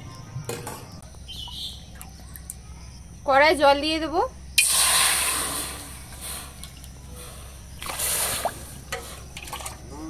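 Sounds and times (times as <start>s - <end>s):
water pouring and splashing: 7.8s - 10.0s.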